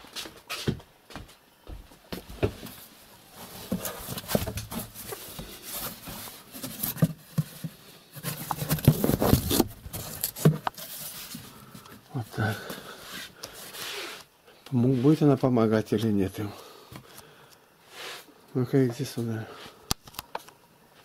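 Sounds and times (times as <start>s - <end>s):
rustling: 2.6s - 15.4s.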